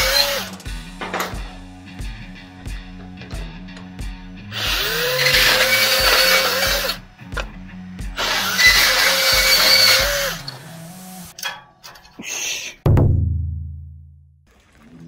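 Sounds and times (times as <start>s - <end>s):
band saw cutting metal: 0.0s - 1.3s, 4.4s - 7.0s, 8.1s - 11.5s
background music with steady beat: 0.0s - 12.2s, 12.9s - 14.2s.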